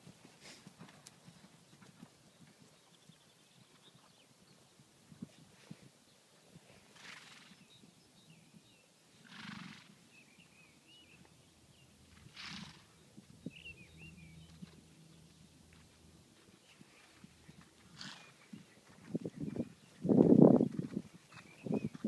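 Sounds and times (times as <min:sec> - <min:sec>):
faint outdoor ambience: 0:00.0 - 0:22.0
soft breathy puffs: 0:00.2 - 0:00.8, 0:05.3 - 0:07.0.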